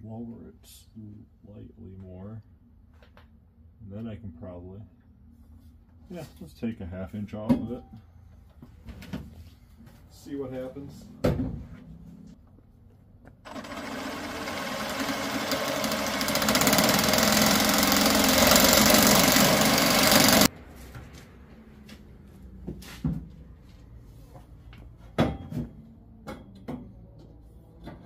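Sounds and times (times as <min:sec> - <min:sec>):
reciprocating saw cutting metal: 0:13.5 - 0:20.5.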